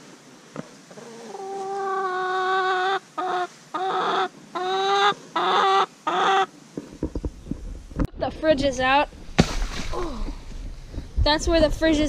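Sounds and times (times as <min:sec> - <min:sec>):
young chicken calling: 0:00.9 - 0:06.5.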